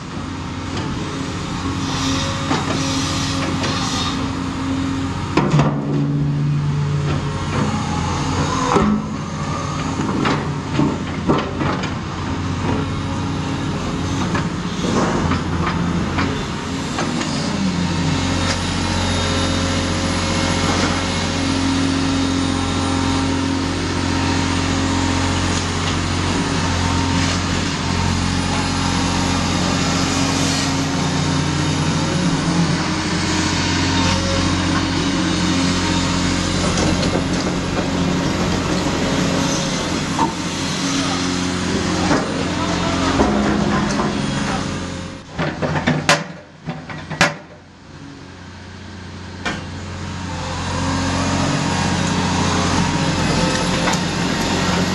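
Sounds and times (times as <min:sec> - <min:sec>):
excavator engine under load: 0:00.0 - 0:54.9.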